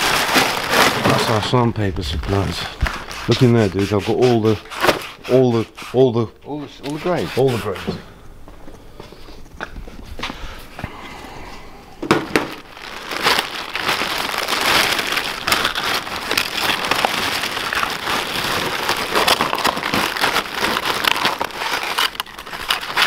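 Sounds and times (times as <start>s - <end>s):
plastic bag rustling and crinkling: 0.0s - 5.8s, 12.0s - 23.0s.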